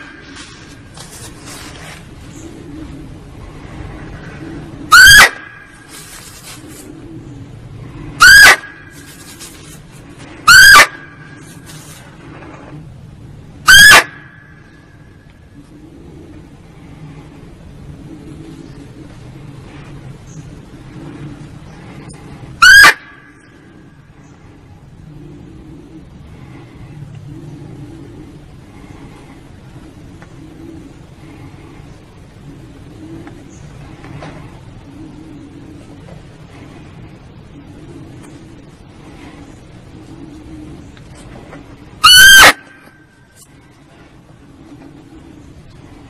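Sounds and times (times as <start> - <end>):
faint low rumble: 0.0 - 42.0, 42.6 - 46.0
barking deer call: 4.9 - 5.7, 8.2 - 8.8, 13.7 - 14.3, 22.6 - 23.2, 42.0 - 42.9.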